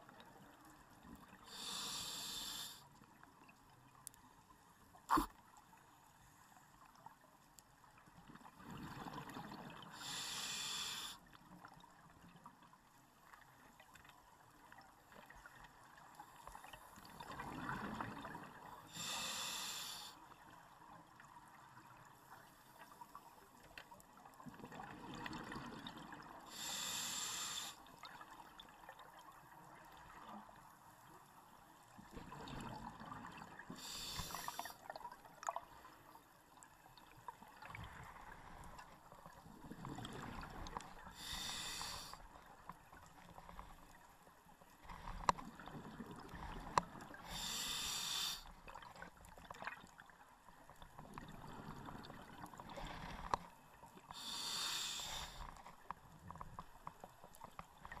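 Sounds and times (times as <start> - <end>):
diver breathing through regulator: 1.5 - 2.8, 10.0 - 11.2, 18.9 - 20.2, 26.5 - 27.8, 33.8 - 34.8, 41.1 - 42.2, 47.2 - 48.5, 54.1 - 55.6.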